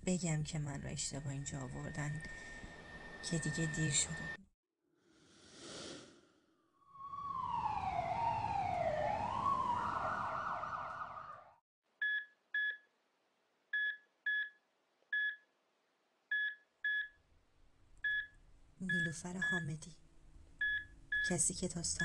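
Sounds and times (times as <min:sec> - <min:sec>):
emergency siren wailing: 0:06.9 - 0:11.6.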